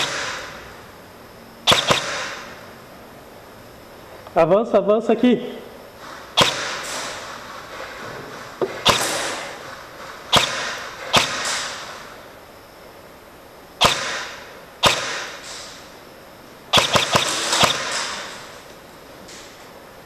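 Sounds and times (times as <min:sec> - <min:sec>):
airsoft gun shots echoing: 0:00.0 - 0:00.6, 0:01.6 - 0:02.6, 0:06.4 - 0:07.3, 0:08.7 - 0:09.6, 0:10.3 - 0:12.0, 0:13.8 - 0:15.6, 0:16.7 - 0:18.5.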